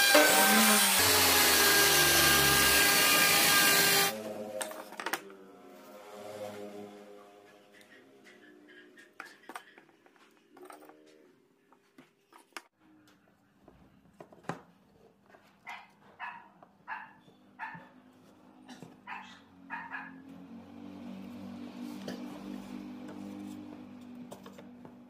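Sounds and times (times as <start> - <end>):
dog barking: 15.6 - 17.9, 19.0 - 20.2.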